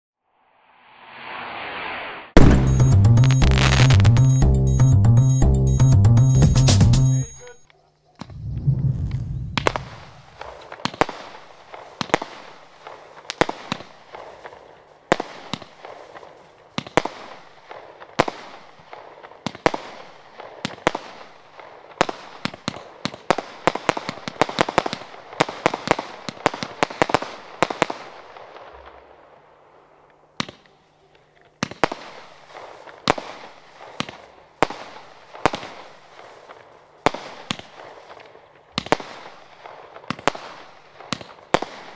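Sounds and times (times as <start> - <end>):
fireworks bangs: 0.7 - 4.2, 8.2 - 21.2.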